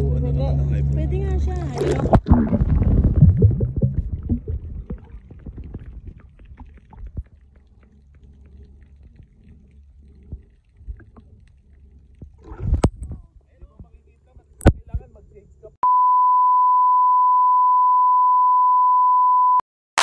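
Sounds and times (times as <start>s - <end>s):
faint underwater rumble: 0.0s - 15.7s
water churning against phone: 1.5s - 13.2s
small underwater clicks: 3.6s - 14.0s.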